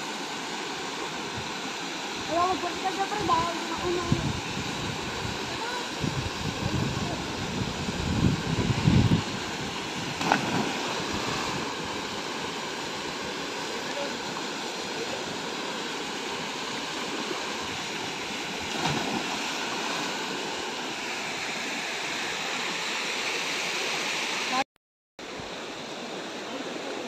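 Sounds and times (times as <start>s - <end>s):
waterfall rushing into pool: 0.0s - 24.6s, 25.2s - 27.0s
people splashing into water: 10.2s - 11.7s, 18.6s - 20.1s.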